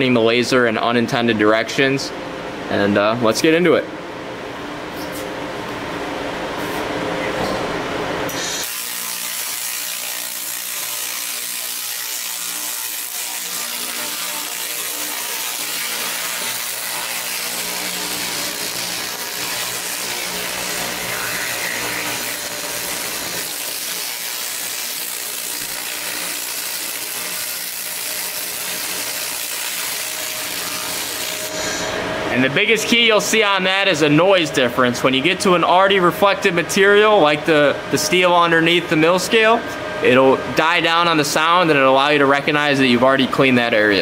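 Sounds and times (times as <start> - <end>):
laser cleaning hiss: 8.3 - 31.9.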